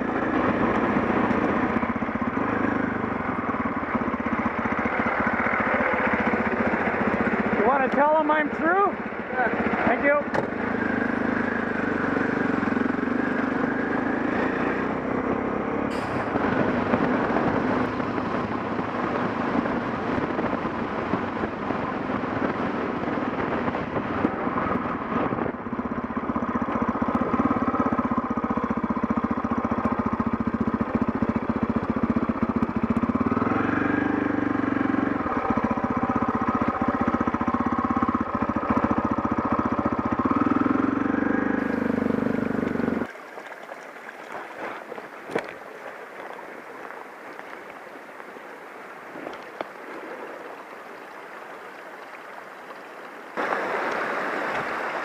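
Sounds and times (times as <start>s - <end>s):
motorcycle engine running: 0.0s - 43.6s
road noise: 0.0s - 55.0s
wind noise: 13.8s - 27.8s, 41.6s - 55.0s.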